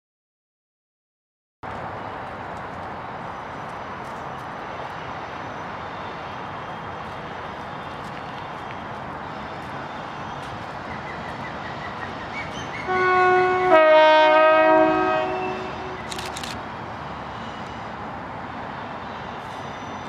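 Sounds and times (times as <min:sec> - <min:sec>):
locomotive horn: 0:12.8 - 0:16.1.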